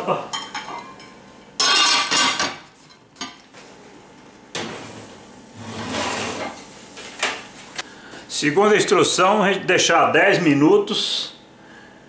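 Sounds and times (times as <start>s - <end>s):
pot scraping and rustling: 4.8s - 7.1s.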